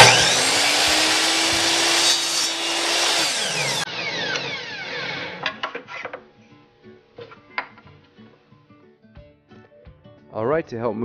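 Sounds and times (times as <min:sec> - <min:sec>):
miter saw motor whining: 0:00.0 - 0:05.5
saw blade winding down: 0:00.0 - 0:05.6.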